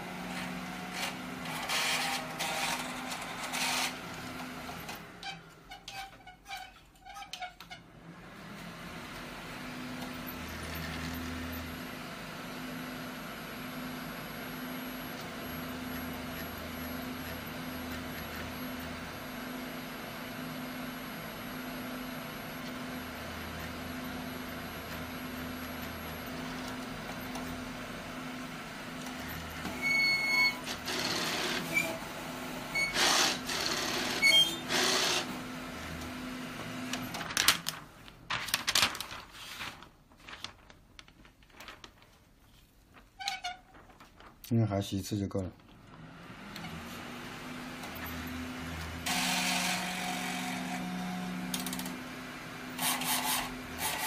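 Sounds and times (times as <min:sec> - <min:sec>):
printer motors pulsing hum: 0:00.0 - 0:05.7, 0:07.9 - 0:37.8, 0:45.7 - 0:54.0
sharp printer clacks: 0:01.0 - 0:04.0.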